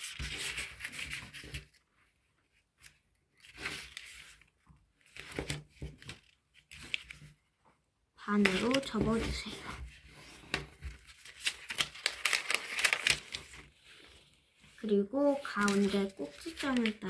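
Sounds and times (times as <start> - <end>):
paper rustling and rubbing: 0.0 - 7.2, 8.4 - 17.0.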